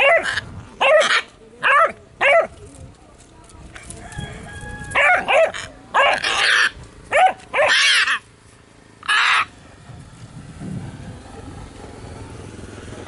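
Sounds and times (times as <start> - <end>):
puppy yelping and barking: 0.0 - 2.5, 4.9 - 8.2, 9.0 - 9.5
macaw squawking harshly: 5.4 - 6.8, 7.6 - 8.2, 9.0 - 9.5.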